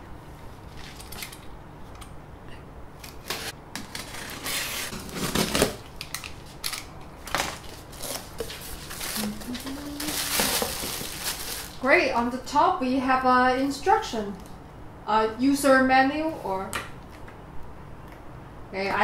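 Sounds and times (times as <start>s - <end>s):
packing tape being slit: 3.0s - 11.8s
cardboard scraping and ripping: 3.2s - 5.8s, 7.3s - 11.8s.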